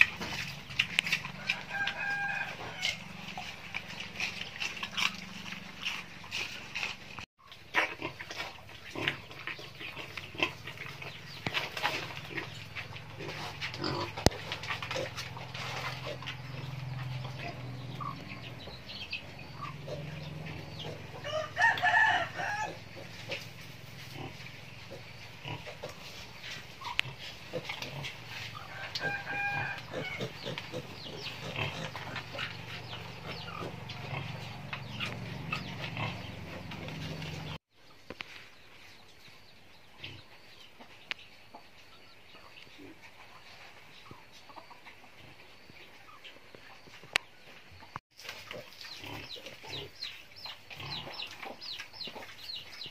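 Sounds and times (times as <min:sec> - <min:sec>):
chicken calling: 0:01.3 - 0:03.2, 0:19.1 - 0:23.2, 0:28.5 - 0:31.5
wild boars grunting: 0:12.2 - 0:21.2, 0:26.8 - 0:37.6.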